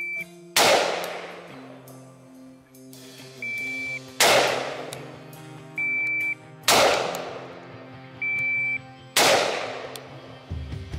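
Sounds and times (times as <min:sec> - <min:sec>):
shot timer beep: 0:00.0 - 0:00.3, 0:03.4 - 0:04.1, 0:05.7 - 0:06.4, 0:08.2 - 0:08.9
background music: 0:00.0 - 0:10.9
rifle shots cracking: 0:00.6 - 0:01.5, 0:04.2 - 0:05.1, 0:06.7 - 0:07.6, 0:09.2 - 0:10.1.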